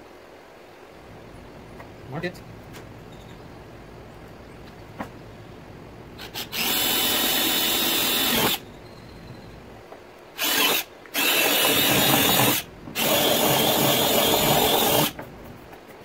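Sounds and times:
cordless drill drilling plastic: 6.2s - 8.6s, 10.4s - 15.2s.

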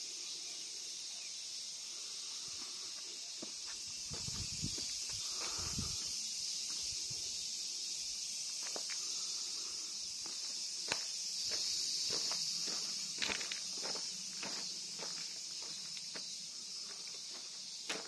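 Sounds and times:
insects droning: 0.0s - 18.0s
footsteps on path: 2.6s - 6.8s, 10.1s - 18.0s.

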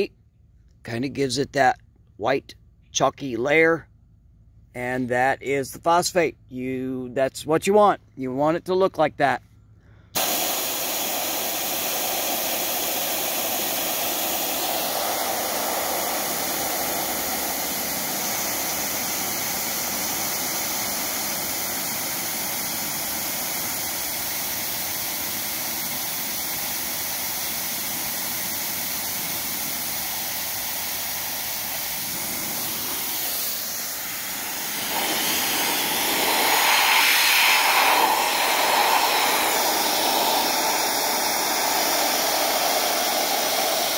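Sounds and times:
compressed air blow gun hissing: 10.0s - 43.9s.

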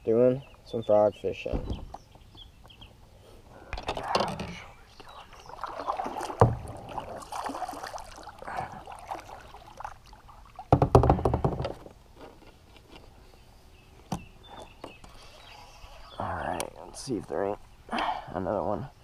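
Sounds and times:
water sloshing: 3.8s - 11.0s
water splashing: 4.0s - 11.0s
knocking on kayak hull: 10.7s - 11.8s.

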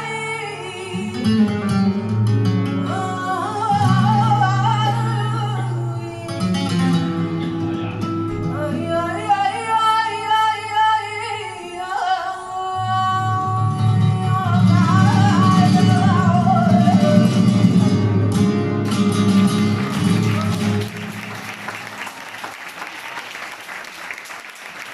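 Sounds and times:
woman singing: 0.0s - 2.1s, 2.7s - 7.0s, 8.4s - 17.9s
flamenco guitar: 0.0s - 22.2s.

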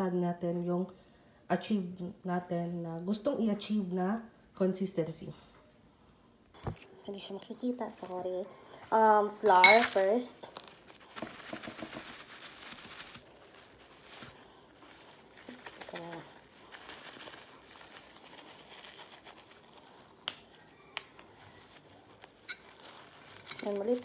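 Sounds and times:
plastic bag crinkling: 9.5s - 24.0s.

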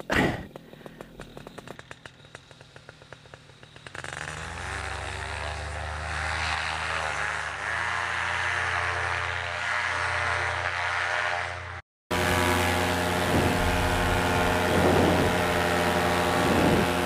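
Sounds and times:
paramotor engine at full throttle: 0.1s - 17.0s.

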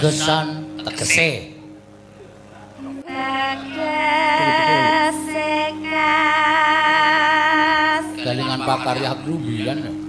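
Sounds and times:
low instrumental tone: 0.0s - 10.0s
woman singing with vibrato: 2.8s - 8.6s.

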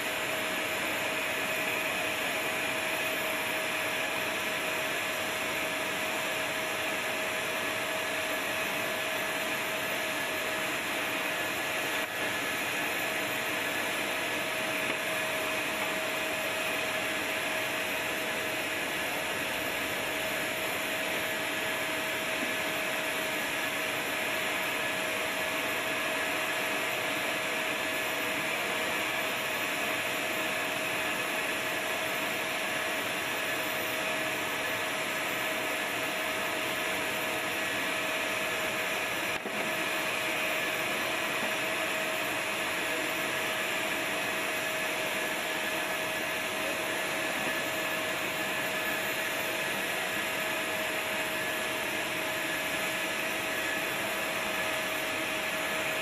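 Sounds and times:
machinery whine: 0.0s - 56.0s.

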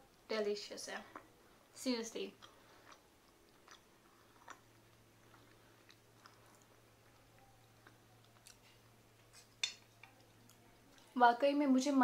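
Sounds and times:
low steady hum: 0.0s - 12.0s
person chewing noodles: 2.3s - 11.2s.

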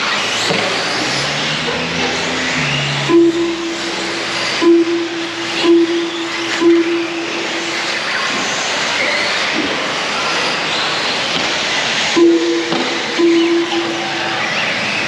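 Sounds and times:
rc car motor whine and tyre noise: 0.0s - 6.7s, 7.3s - 13.3s
horn-like tone: 2.6s - 8.2s, 12.2s - 14.7s.

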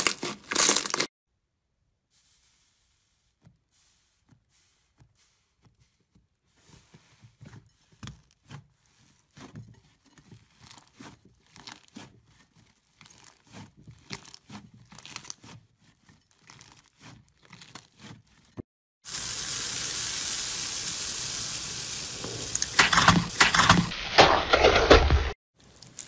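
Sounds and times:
hands squishing slime: 3.4s - 18.5s.

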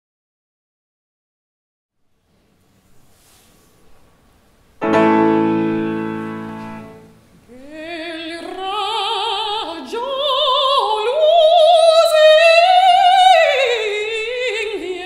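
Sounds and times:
grand piano chord: 4.8s - 7.3s
woman singing opera: 7.5s - 15.0s.

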